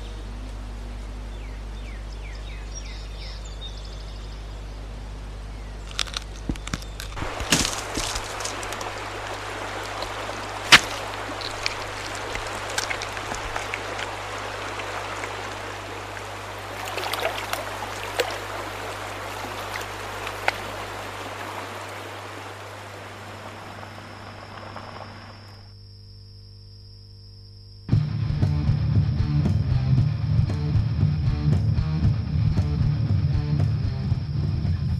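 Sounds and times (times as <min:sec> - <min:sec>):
steady low hum: 0:00.0 - 0:34.9
creek running over rocks: 0:05.8 - 0:25.5.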